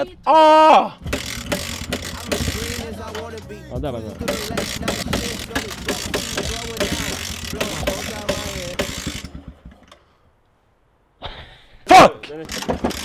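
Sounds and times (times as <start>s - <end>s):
rollers rattling and knocking: 1.0s - 10.0s, 12.3s - 13.0s
dirt bike engine running: 1.0s - 10.1s, 12.5s - 13.0s.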